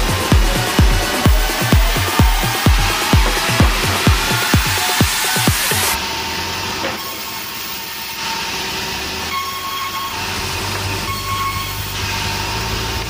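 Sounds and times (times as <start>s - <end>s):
band saw cutting timber: 0.0s - 13.0s.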